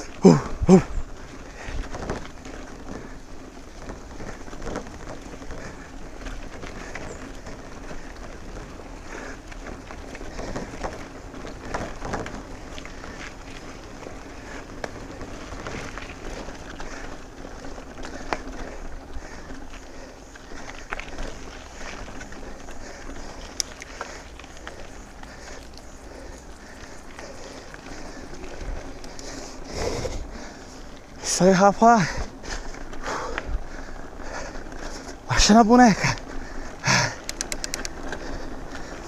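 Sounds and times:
bike tyres crunching on gravel: 0:00.0 - 0:39.0
bike knocks and rattles: 0:01.7 - 0:08.9.

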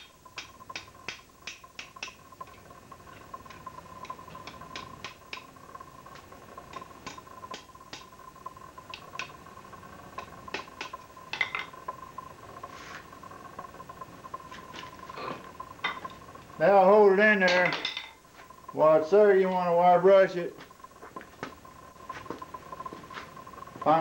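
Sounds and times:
hammer tapping hot iron: 0:00.0 - 0:02.6, 0:03.2 - 0:05.5, 0:06.1 - 0:08.2, 0:10.1 - 0:11.8.

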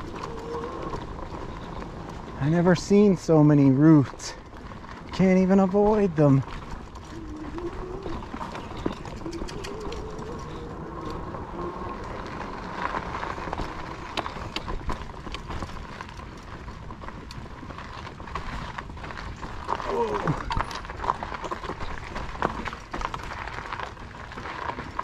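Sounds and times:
bike tyres rushing on dirt trail: 0:00.0 - 0:25.0.

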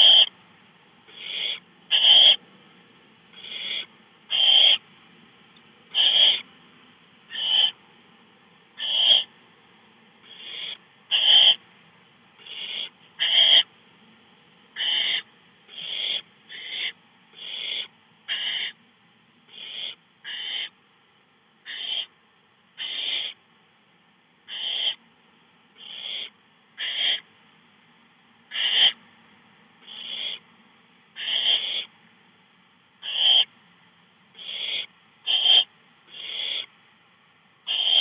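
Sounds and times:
owl nestlings hissing begging calls: 0:00.0 - 0:00.3, 0:01.1 - 0:02.4, 0:03.4 - 0:04.8, 0:05.9 - 0:06.5, 0:07.3 - 0:07.8, 0:08.8 - 0:09.3, 0:10.2 - 0:11.6, 0:12.4 - 0:13.7, 0:14.8 - 0:18.8, 0:19.5 - 0:20.8, 0:21.6 - 0:22.1, 0:22.8 - 0:23.4, 0:24.5 - 0:25.0, 0:25.8 - 0:27.3, 0:28.5 - 0:29.0, 0:29.8 - 0:30.4, 0:31.2 - 0:31.9, 0:33.0 - 0:33.5, 0:34.4 - 0:36.7, 0:37.7 - 0:38.0.

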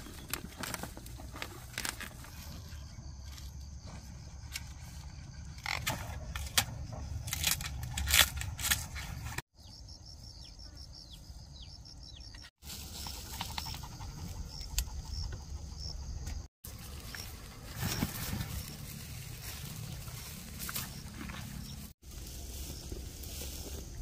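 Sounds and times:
plants crackling and rustling: 0:00.0 - 0:05.0, 0:16.6 - 0:24.0.

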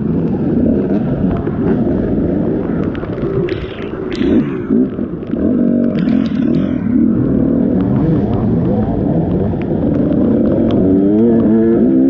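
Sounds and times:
dirt bike engine revving: 0:03.5 - 0:12.0.

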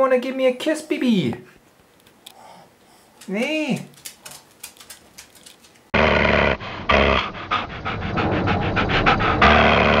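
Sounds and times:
dog panting rapidly: 0:06.6 - 0:09.6.

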